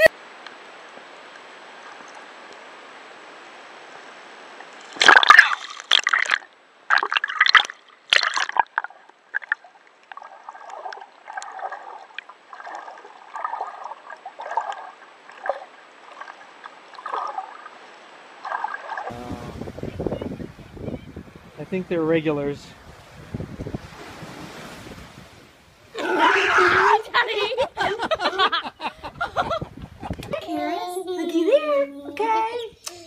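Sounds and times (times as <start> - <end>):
splashy water surges: 0.0 - 28.8
water sloshing and gurgling: 4.5 - 28.0.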